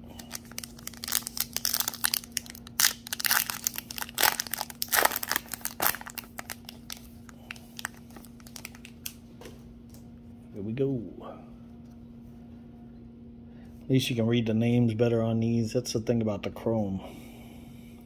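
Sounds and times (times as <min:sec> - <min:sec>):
steady low hum: 0:00.0 - 0:18.0
foil wrapper crackling: 0:00.1 - 0:09.2.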